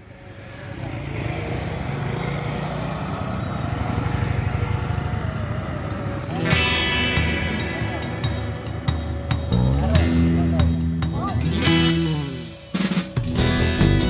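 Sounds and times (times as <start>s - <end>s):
small motorcycle engines rattling: 0.0s - 14.0s
music: 6.3s - 14.0s.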